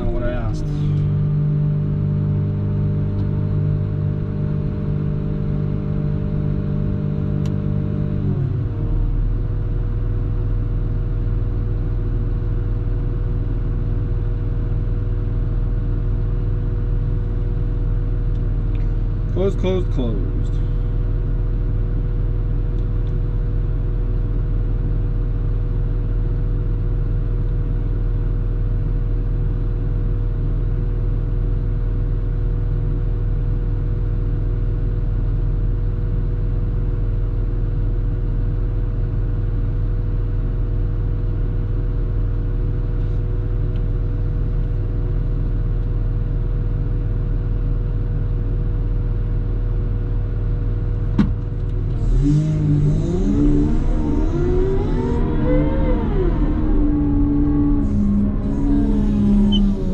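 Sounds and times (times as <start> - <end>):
diesel engine droning: 0.0 - 26.5, 50.7 - 59.9.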